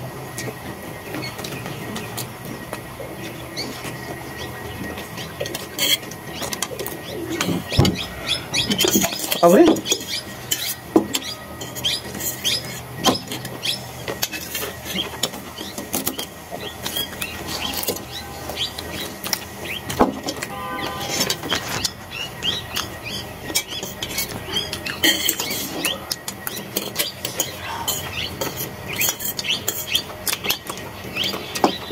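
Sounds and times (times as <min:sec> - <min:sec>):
forks scraping on steel plates: 0:05.4 - 0:13.5, 0:14.2 - 0:22.0, 0:23.5 - 0:30.6.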